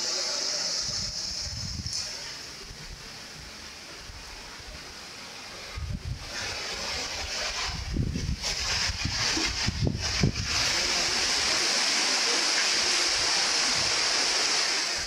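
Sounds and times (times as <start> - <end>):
wind rushing through leaves: 0.0 - 15.0
wind buffeting microphone: 0.8 - 3.0, 5.6 - 11.4.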